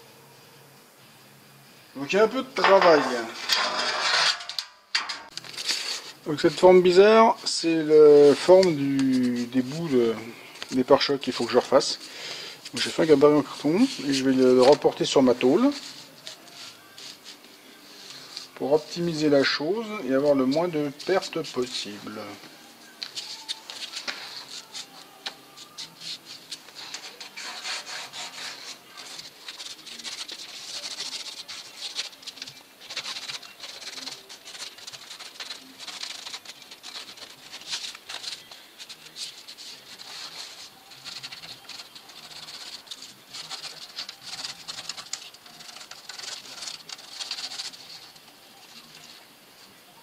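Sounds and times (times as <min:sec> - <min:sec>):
pen scratching on sheet steel: 0:02.6 - 0:04.6, 0:25.8 - 0:48.9
sheet sliding on steel workbench: 0:02.6 - 0:05.3.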